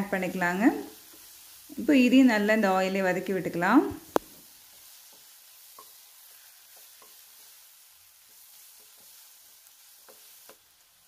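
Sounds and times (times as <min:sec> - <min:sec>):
vegetables sizzling in pan: 0:00.0 - 0:11.0
spatula scraping pan: 0:04.4 - 0:10.9.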